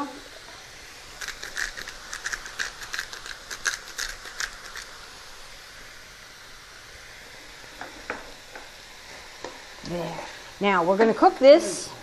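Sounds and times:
vegetables sizzling in oil: 0.0s - 12.0s
salt shaker ticking: 1.1s - 5.0s.

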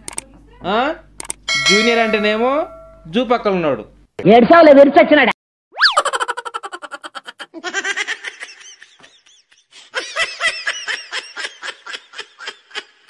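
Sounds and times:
high-pitched giggling laughter: 5.8s - 13.0s.

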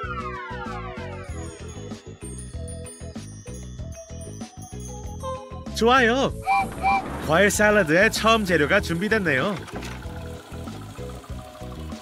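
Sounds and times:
upbeat cartoon music: 0.0s - 12.0s.

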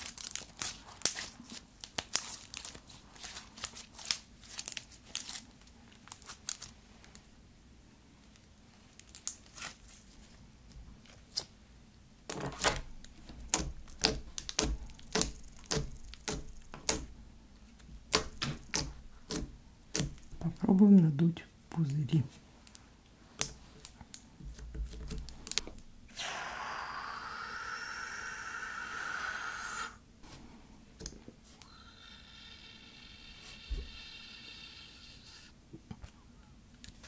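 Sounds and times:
slime squeezed with clicking pops: 13.5s - 17.1s, 18.1s - 20.4s.

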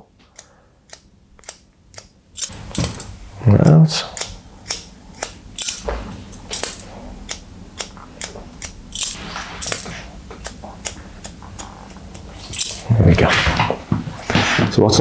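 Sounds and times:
scissors snipping hair: 0.4s - 3.1s, 4.1s - 12.8s.

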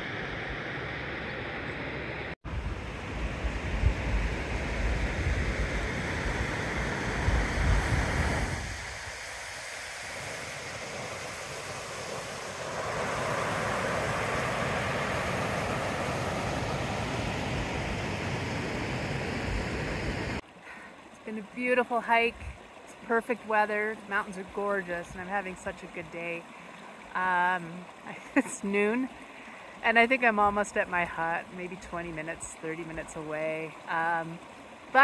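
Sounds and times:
wind on microphone: 2.4s - 9.4s.

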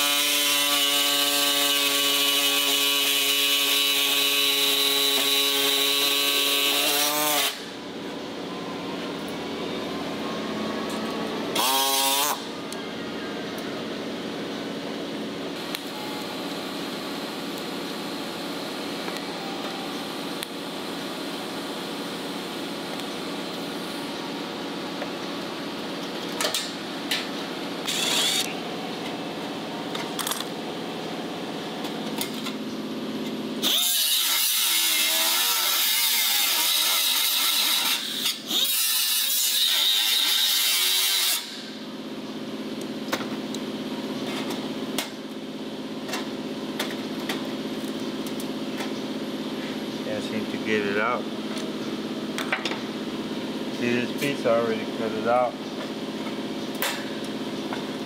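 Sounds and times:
cutoff wheel whining on metal: 0.0s - 58.0s
steady low hum: 7.4s - 33.6s.

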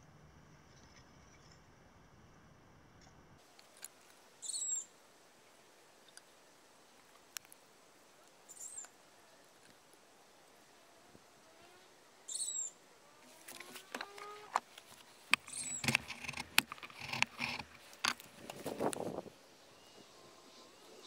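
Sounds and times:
bird chirping: 4.4s - 4.9s, 8.5s - 9.0s, 12.3s - 12.8s, 15.1s - 16.8s.

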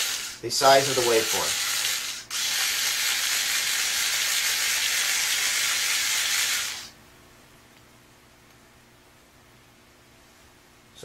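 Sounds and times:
power tool whirring: 0.0s - 7.0s.

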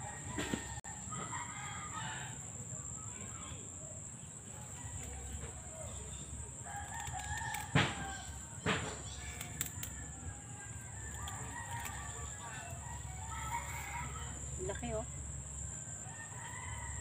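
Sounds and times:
rooster crowing: 0.0s - 2.6s, 6.6s - 8.6s, 9.9s - 17.0s
dry stalks snapping when cut: 6.7s - 8.2s.

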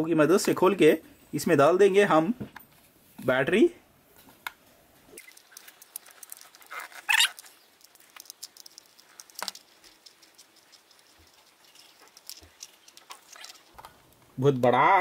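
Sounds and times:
knife scraping plastic screw: 5.2s - 14.2s.

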